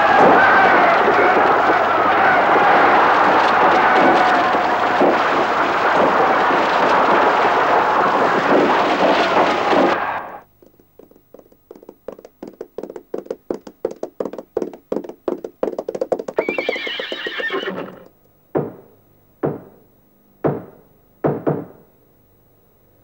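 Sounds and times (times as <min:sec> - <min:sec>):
horse hooves clip-clopping: 0:00.0 - 0:18.1
horse whinnying: 0:16.3 - 0:18.1
single thuds: 0:18.6 - 0:19.8, 0:20.4 - 0:21.8.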